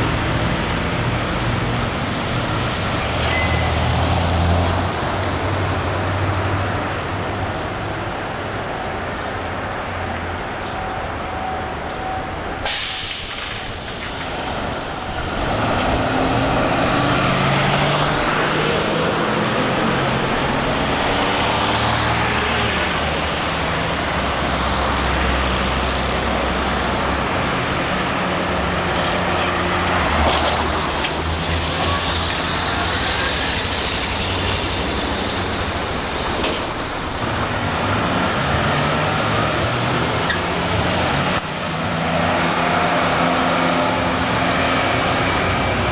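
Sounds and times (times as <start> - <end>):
road noise: 0.0 - 45.9
vehicle engines pulling away: 12.7 - 45.9.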